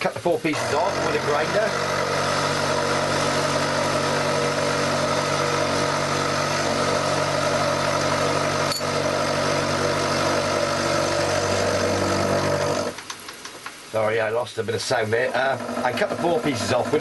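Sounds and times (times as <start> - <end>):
milling machine drone: 0.0 - 13.0, 14.8 - 17.0.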